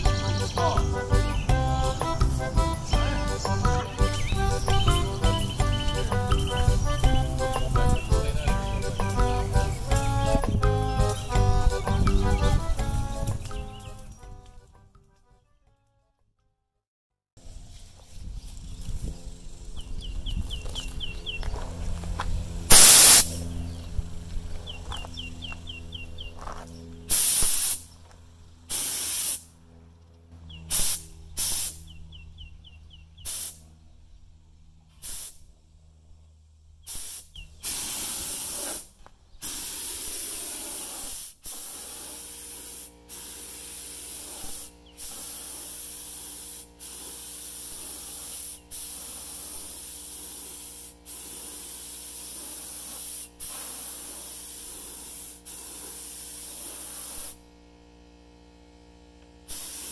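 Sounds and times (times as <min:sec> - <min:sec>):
spray gun hissing: 0:01.8 - 0:14.1, 0:22.7 - 0:23.4, 0:27.1 - 0:27.9, 0:28.7 - 0:29.5, 0:30.7 - 0:32.0, 0:33.2 - 0:33.6, 0:35.0 - 0:35.5, 0:36.9 - 0:57.5, 0:59.4 - 0:59.9.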